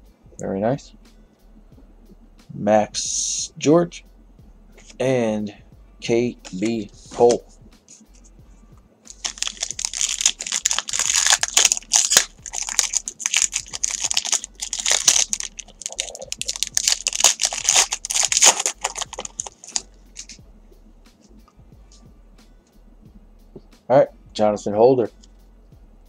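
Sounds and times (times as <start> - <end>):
foil wrapper crinkling: 9.1 - 20.4.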